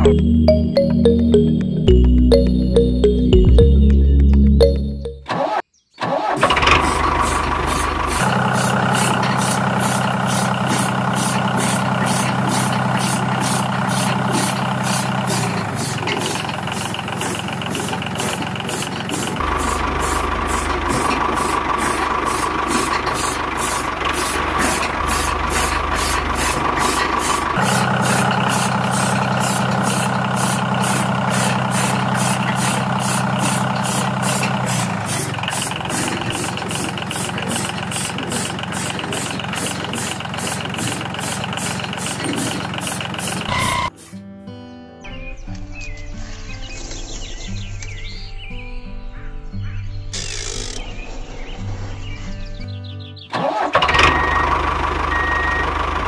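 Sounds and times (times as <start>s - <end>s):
small engine knocking steadily: 6.5s - 43.9s, 53.9s - 56.0s.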